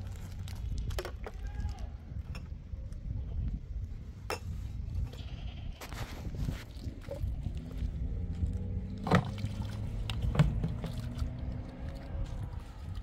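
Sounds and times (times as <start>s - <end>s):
livestock bleating: 5.1s - 5.9s
low rumble: 6.8s - 13.0s.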